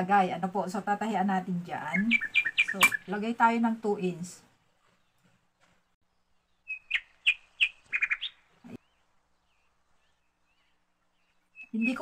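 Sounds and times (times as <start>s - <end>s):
small bird chirping: 1.7s - 3.4s, 4.7s - 12.0s.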